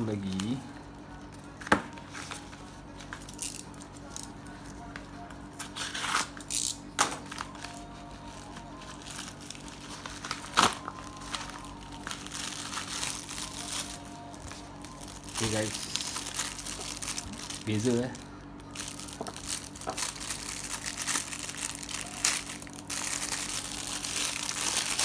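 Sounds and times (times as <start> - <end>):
steady low hum: 0.0 - 25.0
plastic packaging crinkling: 7.2 - 25.0.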